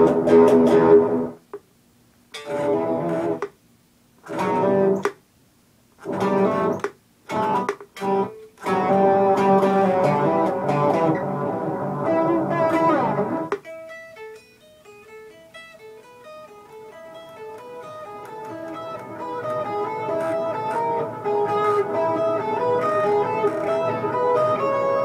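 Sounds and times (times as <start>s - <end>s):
electric guitar chords: 0.0s - 1.4s, 2.4s - 3.5s, 4.3s - 5.1s, 6.0s - 25.0s
guitar single notes picked: 6.1s - 25.0s.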